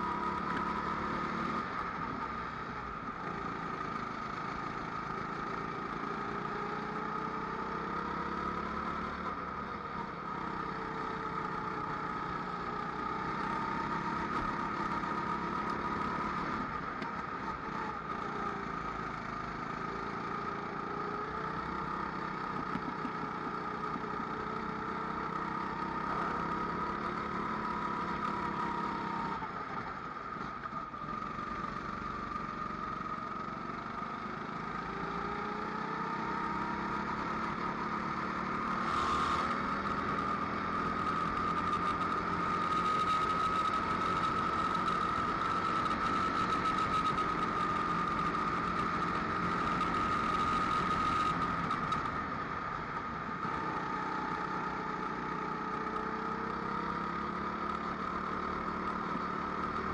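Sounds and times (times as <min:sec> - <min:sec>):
go-kart engine racing: 0:00.0 - 0:59.9.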